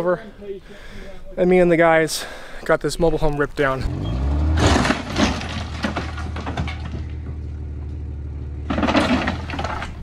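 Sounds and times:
vehicle engine hum: 3.8 - 10.0
knocks and rattles: 4.6 - 10.0.

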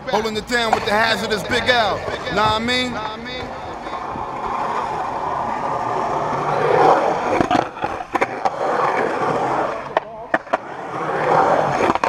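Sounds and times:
skateboard wheels rolling on concrete: 0.0 - 12.0
skateboard popping and landing clacks: 6.7 - 10.8.

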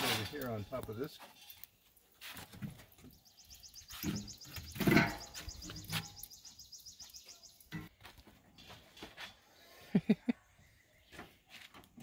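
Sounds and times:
small bird trilling: 3.2 - 7.6
metal clanks from grill: 4.0 - 5.9.

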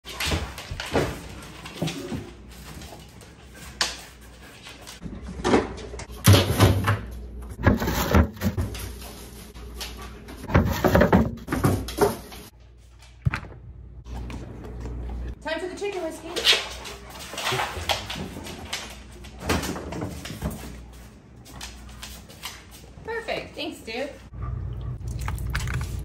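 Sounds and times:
refrigerator clunks and rattles: 5.2 - 8.8, 10.4 - 12.3.

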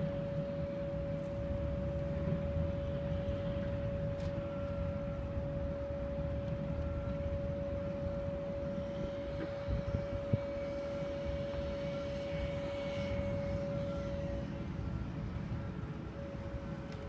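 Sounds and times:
low machinery rumble: 0.0 - 17.0
machinery whine: 0.0 - 17.0.

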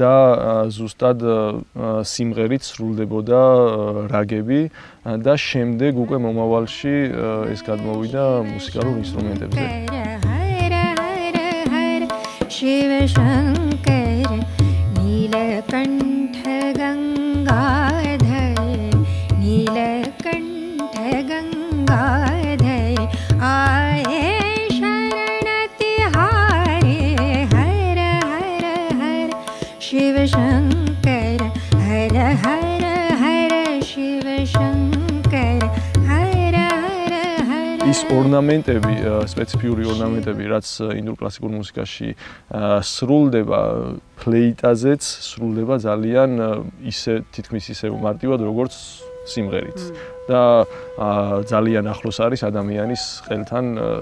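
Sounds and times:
woman singing ornamented melody: 5.9 - 38.6, 49.6 - 50.2
tabla strokes: 6.8 - 40.4
tanpura drone: 48.8 - 52.2.

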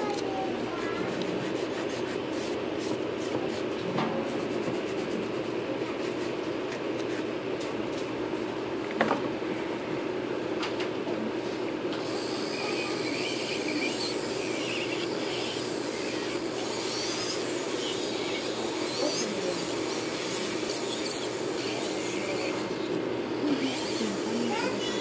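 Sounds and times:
electric nail drill whine: 11.9 - 25.0.

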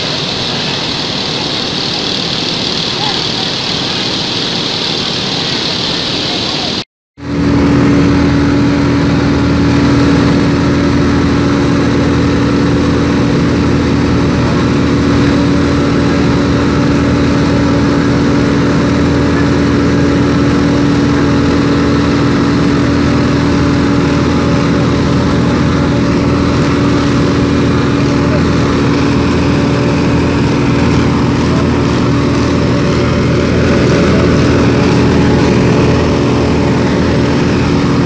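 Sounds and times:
engine running steadily: 0.0 - 38.0.

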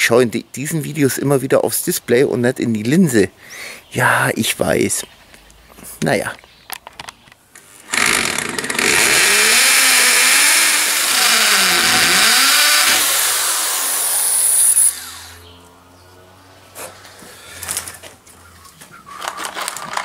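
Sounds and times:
electric drill boring into wall: 7.8 - 15.4.

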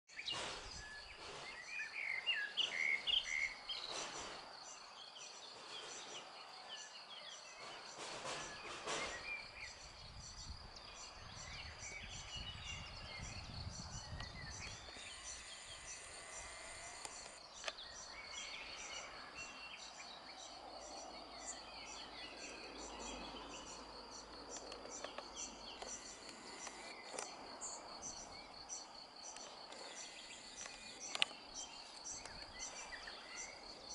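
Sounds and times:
bird chirps: 0.1 - 33.9
high insect trill: 9.1 - 33.9.

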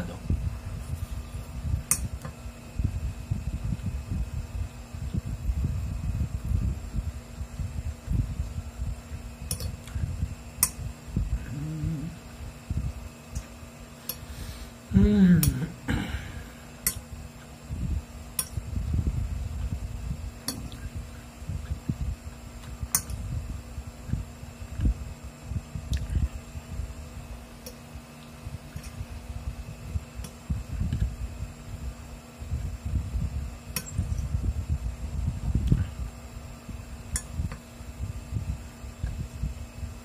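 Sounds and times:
low falling vocal sound: 11.4 - 12.2, 14.9 - 16.2.

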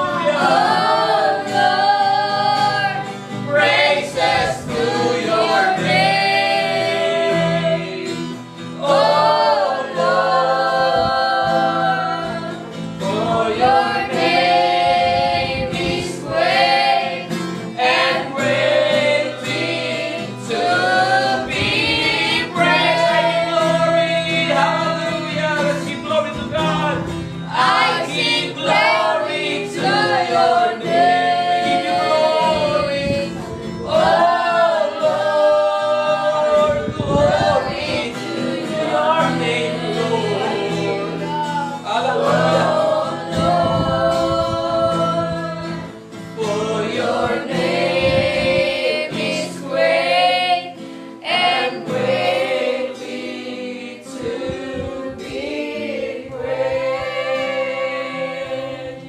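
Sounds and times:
strummed acoustic guitar: 0.0 - 59.0
man singing: 22.5 - 27.1, 31.0 - 45.6.

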